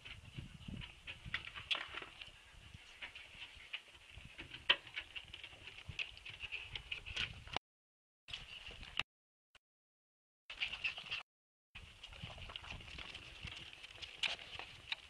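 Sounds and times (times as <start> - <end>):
paw and claw clicks on concrete: 1.3 - 2.3, 3.0 - 7.4, 12.0 - 15.0.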